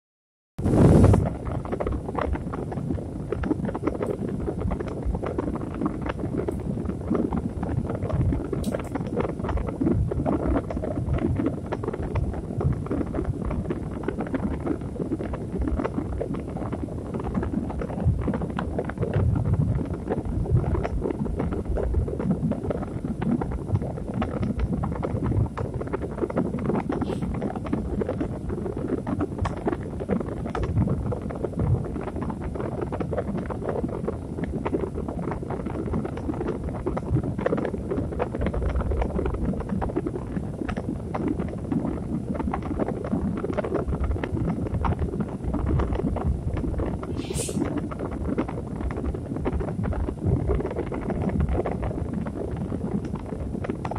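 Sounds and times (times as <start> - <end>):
constant fine crackle: 0.6 - 53.9
dense low rumble: 26.1 - 28.7, 45.9 - 47.9.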